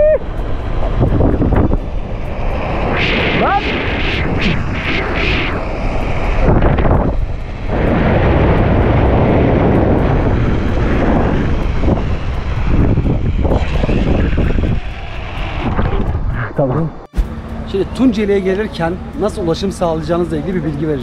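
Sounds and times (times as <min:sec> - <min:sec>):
wind buffeting microphone: 0:00.0 - 0:17.2.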